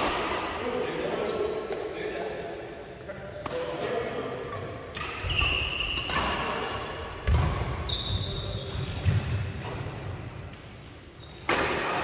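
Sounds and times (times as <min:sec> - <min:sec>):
short high shoe squeak: 0:05.2 - 0:06.1, 0:07.9 - 0:08.8.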